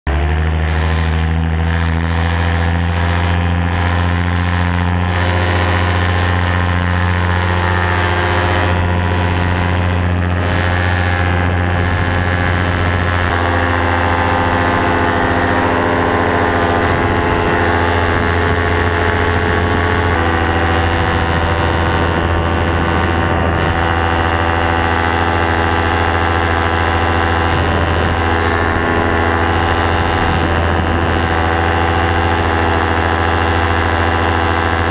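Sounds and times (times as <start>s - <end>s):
paramotor engine at high throttle: 0.0s - 34.9s.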